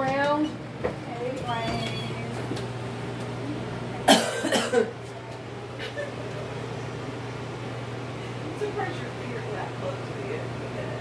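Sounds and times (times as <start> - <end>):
steady low hum: 0.0 - 11.0
person coughing: 4.1 - 5.0.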